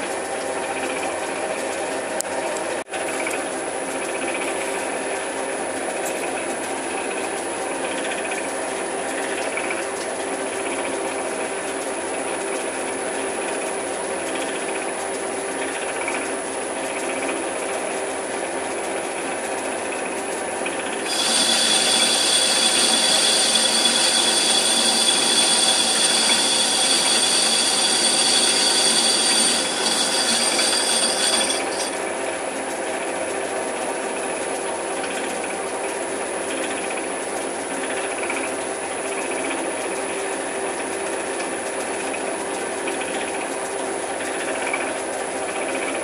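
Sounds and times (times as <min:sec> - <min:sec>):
metal lathe running: 0:00.0 - 0:46.0
lathe cutting hiss and whine: 0:21.0 - 0:32.0.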